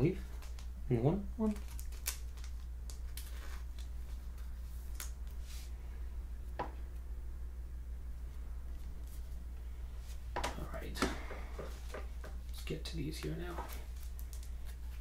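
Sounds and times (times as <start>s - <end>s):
steady low hum: 0.0s - 15.0s
plastic sleeves crinkling: 0.2s - 0.7s, 1.4s - 5.7s, 10.4s - 15.0s.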